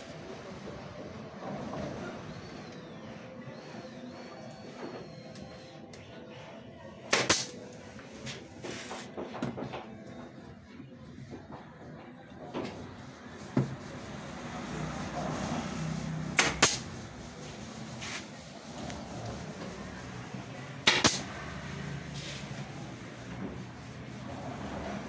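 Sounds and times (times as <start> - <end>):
nail gun firing into wood: 7.1 - 7.6, 16.4 - 16.9, 20.8 - 21.3.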